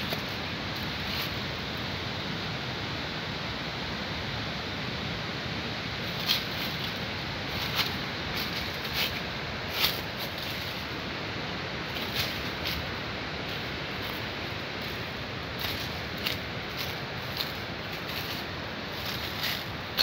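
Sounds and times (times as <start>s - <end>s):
leaves and twigs crackling underfoot: 0.0s - 1.6s, 6.0s - 20.0s
steady hiss: 0.0s - 20.0s.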